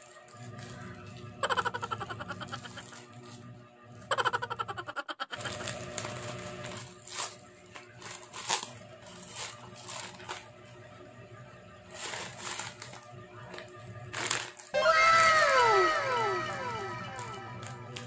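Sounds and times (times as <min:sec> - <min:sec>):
plastic bag tearing and crinkling: 0:00.0 - 0:03.4, 0:05.4 - 0:10.5, 0:11.9 - 0:16.0.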